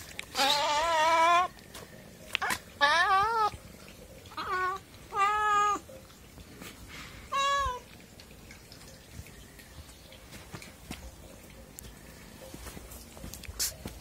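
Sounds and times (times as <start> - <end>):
cat meowing: 0.3 - 1.5.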